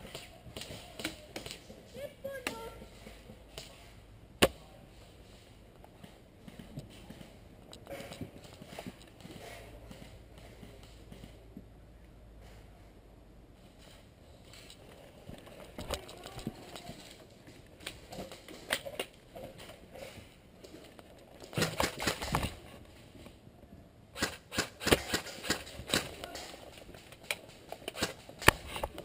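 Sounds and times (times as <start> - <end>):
airsoft gunshots snapping: 24.2 - 26.2.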